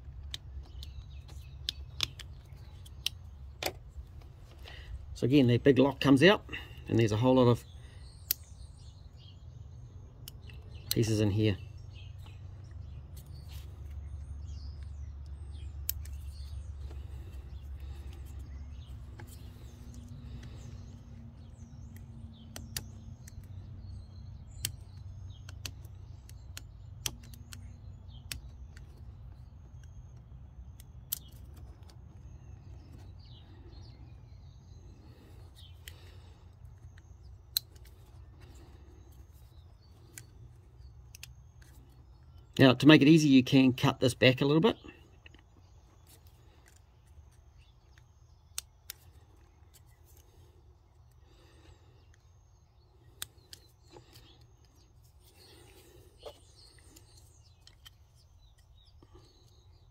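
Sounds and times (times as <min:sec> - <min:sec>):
birds chirping faintly: 0:00.0 - 0:59.9.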